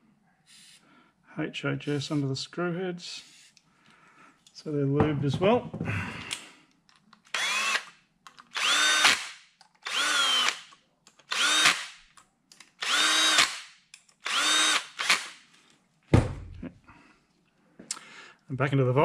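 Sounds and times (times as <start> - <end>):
cordless drill driving screws: 7.3 - 12.0, 12.8 - 15.4
knock: 16.1 - 16.5.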